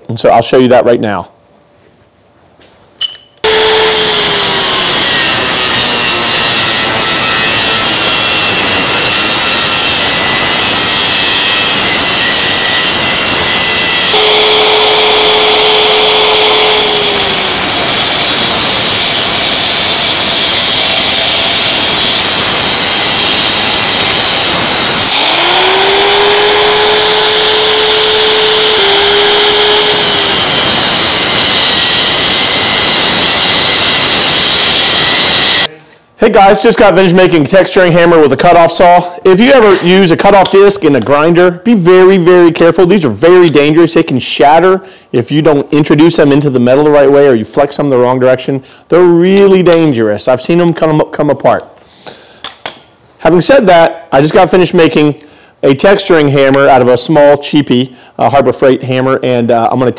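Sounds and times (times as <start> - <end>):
angle grinder cutting steel: 3.4 - 35.7.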